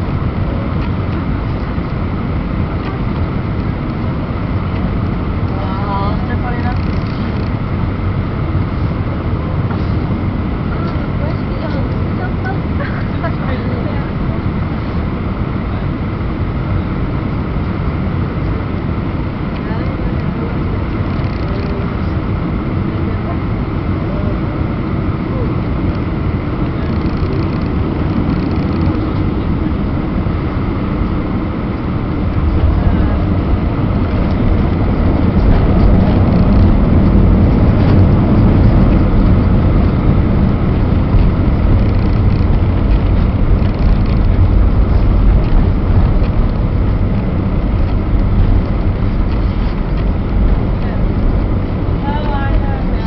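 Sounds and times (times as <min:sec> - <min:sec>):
aircraft cabin engine and airflow: 0:00.0 - 0:53.0
airliner rolling along runway: 0:00.0 - 0:53.0.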